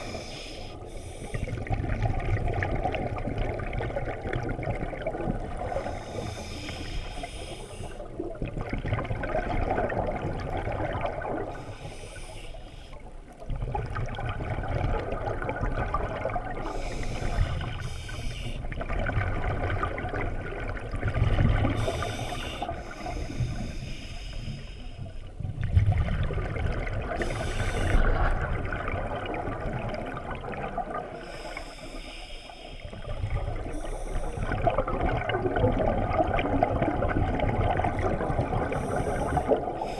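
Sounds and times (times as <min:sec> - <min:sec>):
regulator inhale hiss: 0:00.0 - 0:01.6, 0:05.7 - 0:08.1, 0:11.5 - 0:13.1, 0:16.6 - 0:18.7, 0:21.7 - 0:25.3, 0:27.2 - 0:28.3, 0:31.2 - 0:34.6, 0:38.6 - 0:39.9
exhaled bubbles rumbling underwater: 0:00.0 - 0:39.9.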